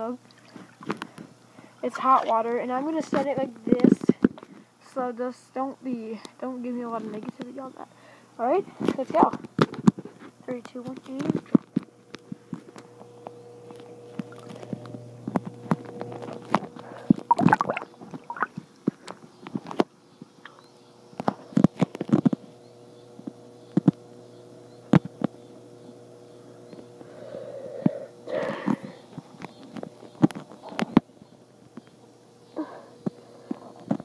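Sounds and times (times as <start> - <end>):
steady low hum: 0.0 - 34.0
watery swirls: 13.8 - 14.9, 17.0 - 18.6.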